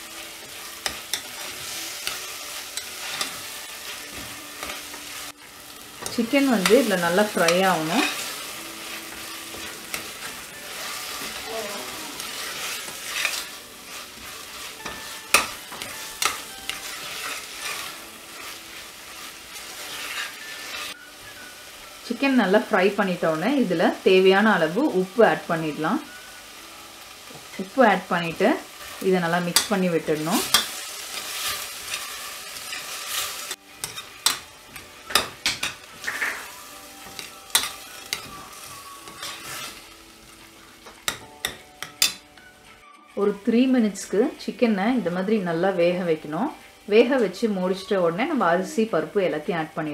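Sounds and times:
food sizzling in a pot: 0.0 - 49.9
metal spoon scraping pan: 12.2 - 21.0, 29.4 - 38.3, 39.0 - 39.8
spoon clinking against pot: 33.8 - 38.4.

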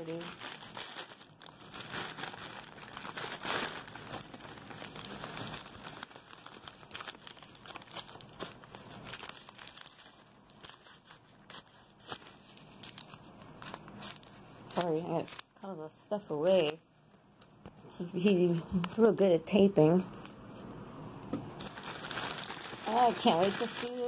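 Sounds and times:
packing wrap crinkling and tearing: 0.0 - 17.6, 21.6 - 24.0.

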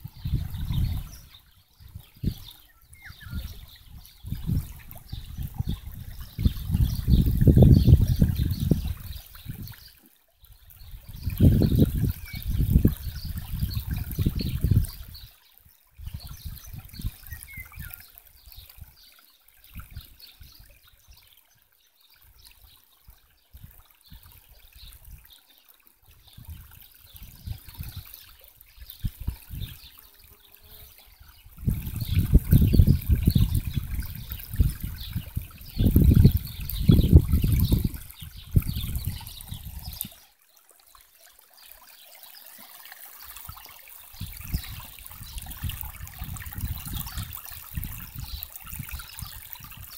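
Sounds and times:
wind buffeting microphone: 0.0 - 9.9, 10.7 - 15.3, 16.0 - 18.0, 26.2 - 28.1, 28.8 - 29.9, 31.2 - 40.2, 44.1 - 49.9
stream trickling over rocks: 0.0 - 49.9.

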